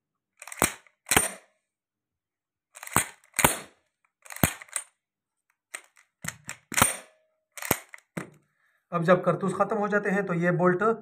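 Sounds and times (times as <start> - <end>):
shotgun bolt clacking: 0.4 - 1.4, 2.8 - 4.9, 5.7 - 8.4.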